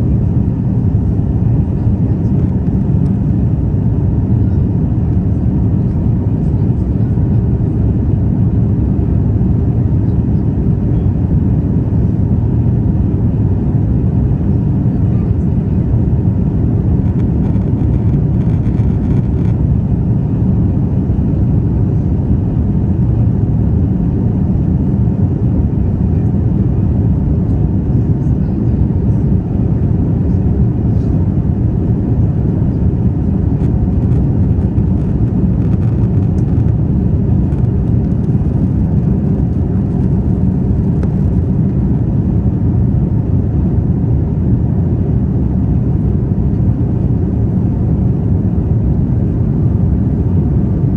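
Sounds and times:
jet engines rumbling in cabin: 0:00.0 - 0:50.9
rushing airflow: 0:30.8 - 0:43.8.

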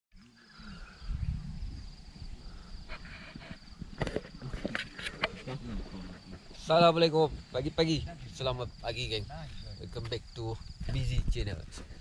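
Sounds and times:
insects chirring: 0:00.2 - 0:12.0.

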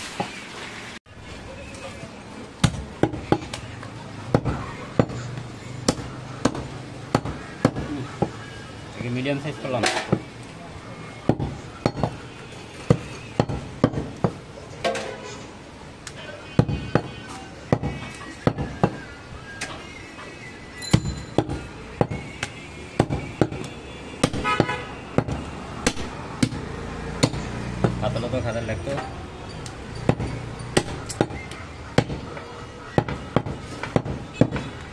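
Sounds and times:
knife chopping meat and bone: 0:04.3 - 0:08.4, 0:20.9 - 0:28.0, 0:30.0 - 0:34.8.

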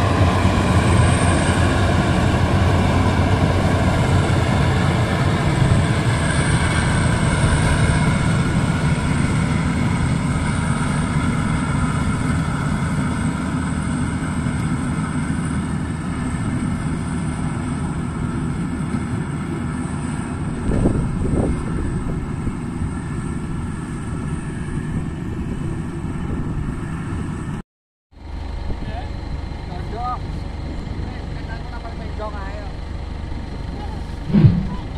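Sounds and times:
combine harvester running: 0:00.0 - 0:27.6, 0:28.2 - 0:34.9
brief thumps: 0:34.3 - 0:34.9.

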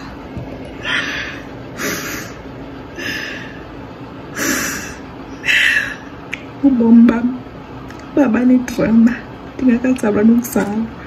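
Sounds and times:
woman breathing loudly: 0:00.8 - 0:06.2.

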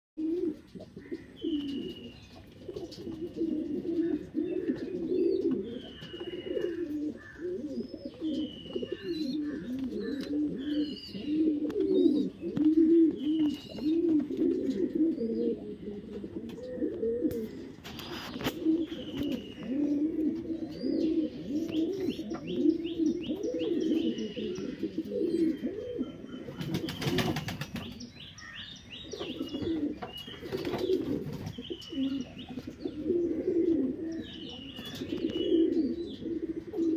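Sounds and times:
pigeons cooing: 0:00.2 - 0:36.9
brief rustle: 0:17.3 - 0:19.5.

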